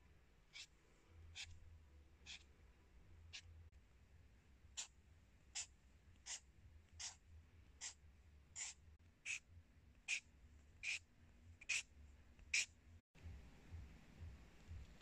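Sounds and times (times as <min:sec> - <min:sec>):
marker scratching on paper: 0:00.5 - 0:00.7, 0:01.3 - 0:01.6, 0:02.2 - 0:02.5, 0:03.3 - 0:03.5, 0:04.7 - 0:07.2, 0:07.8 - 0:08.0, 0:08.6 - 0:09.5, 0:10.1 - 0:12.8.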